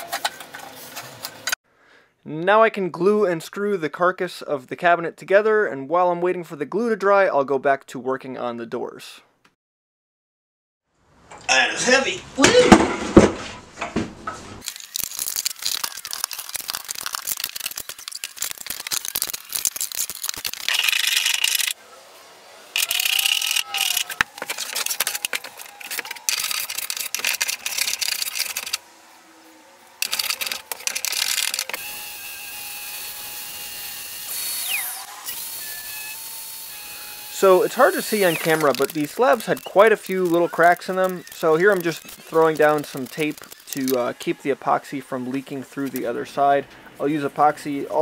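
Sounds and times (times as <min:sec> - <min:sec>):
orbital sander running: 0:31.8 - 0:40.4.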